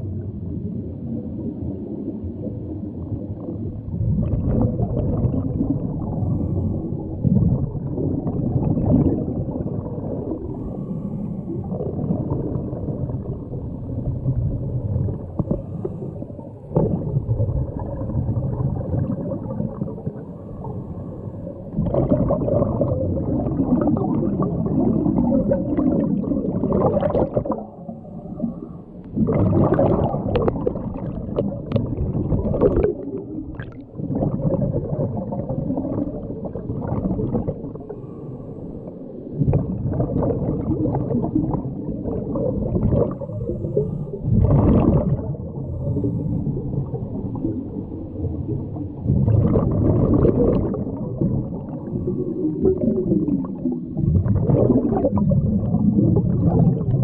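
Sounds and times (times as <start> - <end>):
underwater bubbling surges: 0.0 - 57.0
diver breathing through regulator: 10.4 - 11.7, 37.8 - 39.1, 45.6 - 46.7.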